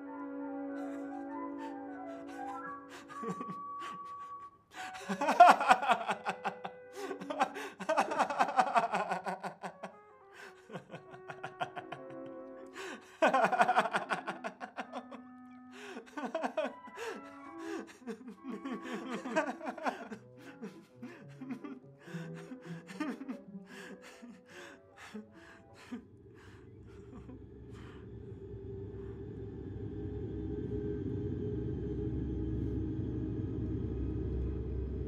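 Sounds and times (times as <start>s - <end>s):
background music with held notes: 0.0s - 35.0s
man laughing: 0.8s - 15.2s, 15.8s - 28.0s.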